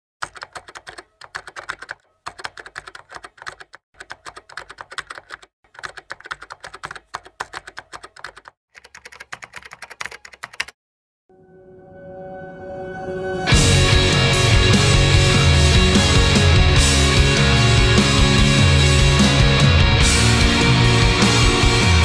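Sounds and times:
rapid keyboard typing: 0.2s - 10.8s.

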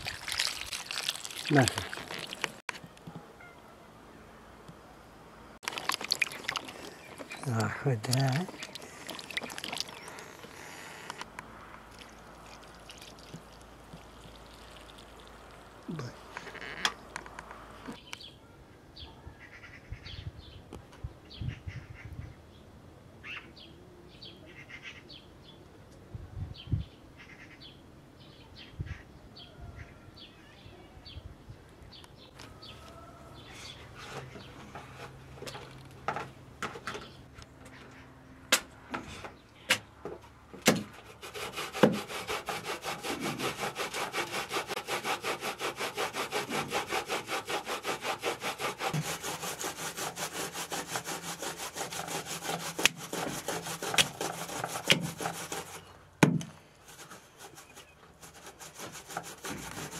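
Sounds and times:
birds chirping: 5.7s - 13.3s
metal grater rasping: 41.1s - 55.9s
cleaver chopping on wooden stump: 56.2s - 56.5s.

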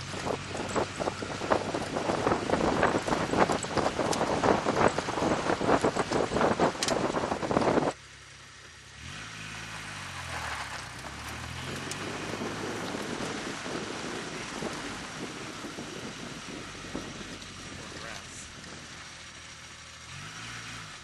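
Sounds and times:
wind rushing on microphone: 0.0s - 8.0s, 11.3s - 19.1s
car engine wavering: 0.0s - 21.0s
vehicle driving on dirt track: 0.0s - 21.0s.

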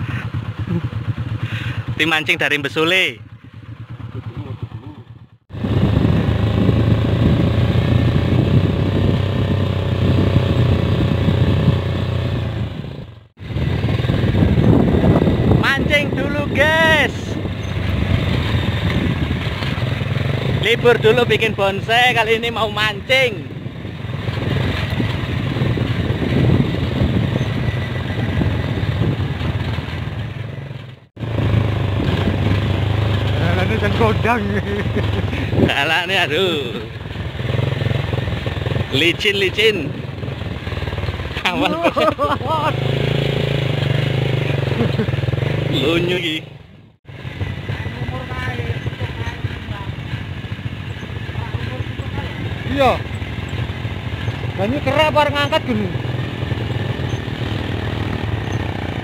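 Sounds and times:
motorcycle engine running: 0.0s - 59.0s
rushing road noise: 0.0s - 59.0s.

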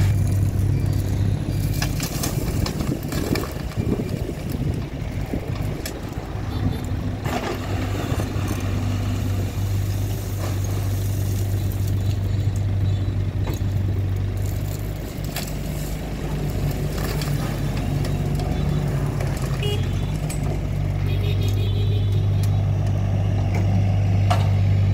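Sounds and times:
excavator bucket scraping: 0.0s - 6.2s, 7.0s - 9.4s, 14.4s - 20.7s
diesel engine humming: 0.0s - 24.9s.

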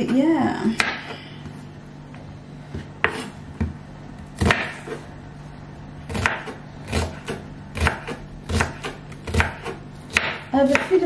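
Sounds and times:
knife chopping on wooden board: 0.8s - 1.2s, 2.7s - 3.8s, 4.4s - 5.0s, 6.1s - 11.0s.

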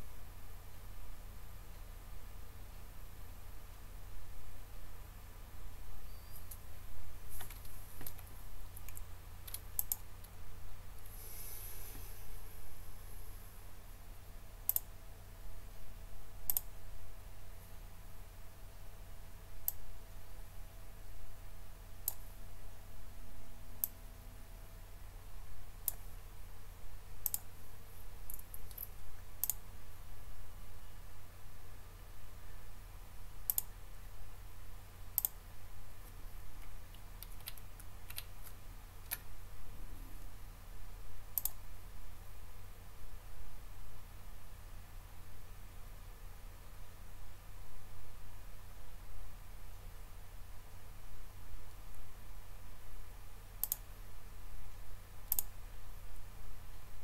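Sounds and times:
steady low hum: 0.0s - 57.0s
computer mouse clicks: 7.3s - 10.4s, 14.6s - 14.9s, 16.5s - 16.7s, 19.6s - 19.9s, 22.0s - 22.2s, 25.8s - 26.0s, 27.2s - 27.5s, 28.3s - 29.6s, 33.4s - 33.7s, 35.2s - 35.4s, 36.0s - 39.3s, 41.3s - 41.6s, 53.6s - 53.9s, 55.3s - 55.5s.

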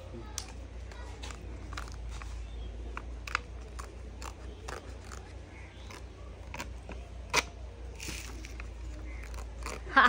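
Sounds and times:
paper tearing and crinkling: 3.2s - 10.0s.

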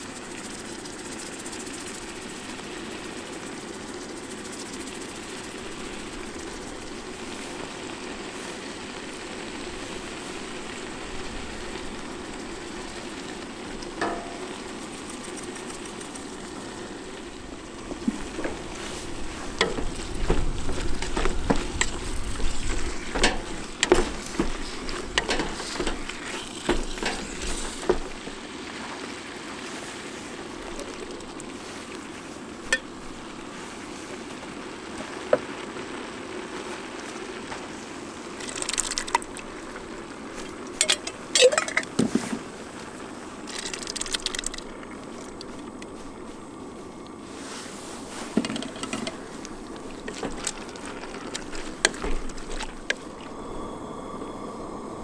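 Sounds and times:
pot hissing: 0.0s - 55.0s
wooden spoon clinking and scraping pot: 12.7s - 15.9s, 18.0s - 28.2s, 40.8s - 42.3s, 48.2s - 49.3s.

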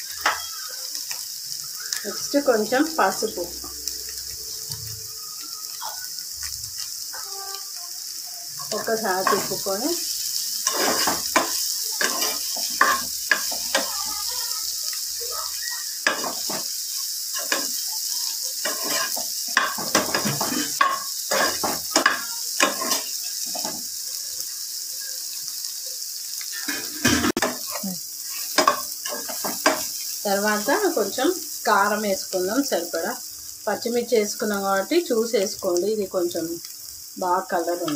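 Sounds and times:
potatoes sizzling in oil: 0.0s - 37.9s
spoon scraping and knocking pan: 8.6s - 10.0s, 10.6s - 14.2s, 16.0s - 17.8s, 18.6s - 23.9s, 26.7s - 30.1s.

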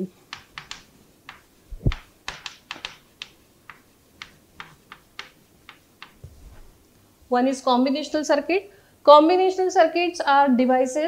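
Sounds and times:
chalk tapping and scratching: 0.2s - 6.8s
dull thump: 6.1s - 6.8s.

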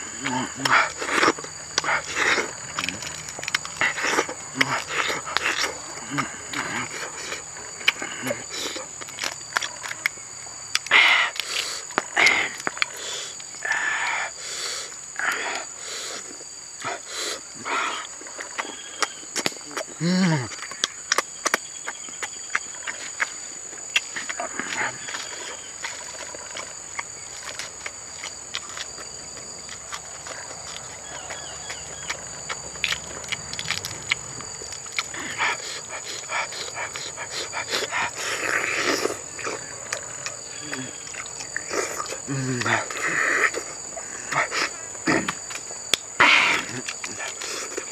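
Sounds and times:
man humming mm: 0.0s - 1.0s, 19.7s - 20.6s, 40.5s - 41.1s, 41.7s - 43.6s
high insect drone: 0.0s - 47.9s
man chewing and lip-smacking: 0.0s - 47.9s.

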